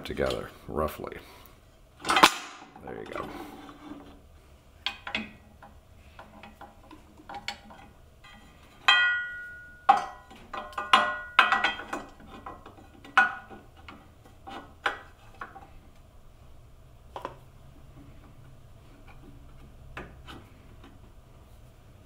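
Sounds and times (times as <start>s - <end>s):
metal parts clinking: 7.4s - 13.3s.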